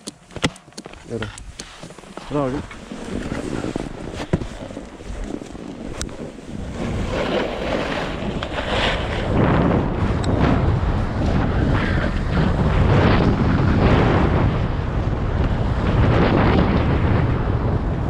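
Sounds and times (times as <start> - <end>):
wind buffeting microphone: 0.0 - 18.0
skis scraping over packed snow: 0.3 - 14.3.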